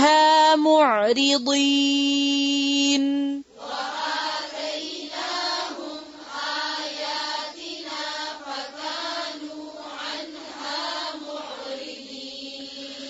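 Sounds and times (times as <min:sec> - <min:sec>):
group chanting in unison: 0:03.5 - 0:13.0.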